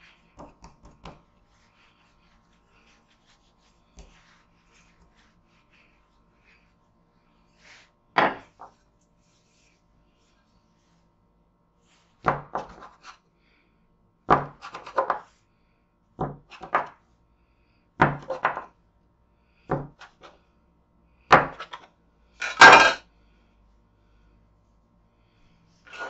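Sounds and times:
scraper scuffing counter: 0.0 - 6.7, 25.8 - 26.0
bench scraper chopping dough: 14.3 - 15.2, 21.3 - 21.8.

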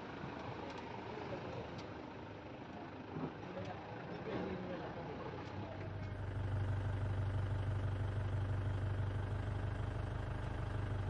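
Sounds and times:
vehicle engine idling: 6.0 - 11.0.

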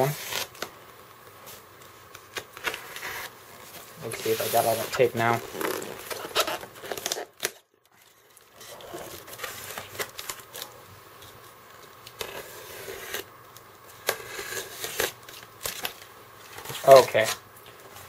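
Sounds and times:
tape peeling: 4.1 - 7.6.

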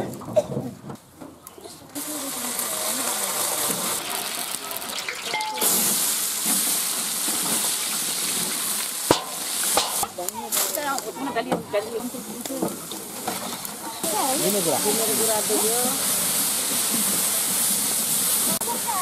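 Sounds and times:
onions sizzling in oil: 2.0 - 19.0
oil pouring into pan: 2.1 - 10.2.

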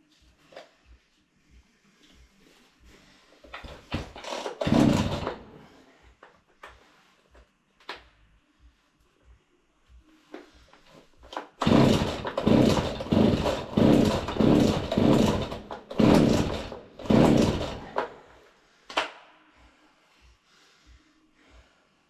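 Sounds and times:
chainsaw starter rope pulls: 3.5 - 5.6, 11.3 - 18.2.

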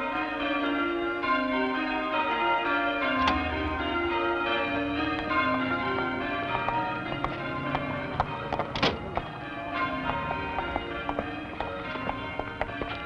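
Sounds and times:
church bells ringing: 0.0 - 13.0
low hum: 3.2 - 12.8.

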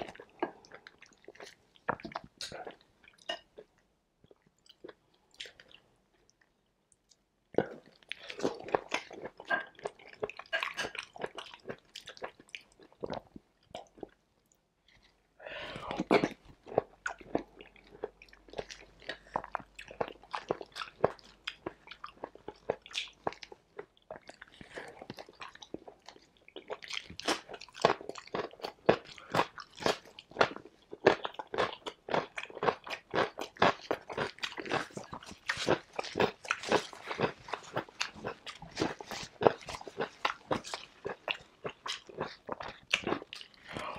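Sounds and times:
chewing with wet mouth clicks: 0.0 - 15.2, 16.0 - 43.9
crunching cucumber: 26.6 - 43.9.

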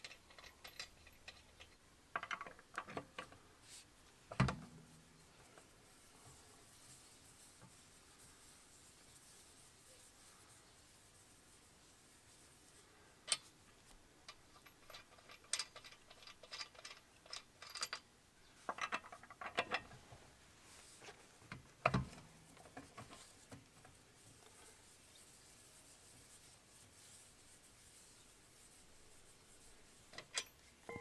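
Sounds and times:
lug nuts clicking and rattling: 14.2 - 18.1.

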